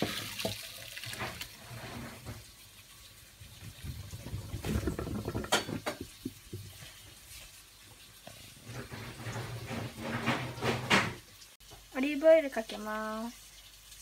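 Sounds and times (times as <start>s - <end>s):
water draining and dripping: 0.0s - 7.2s, 7.9s - 11.9s.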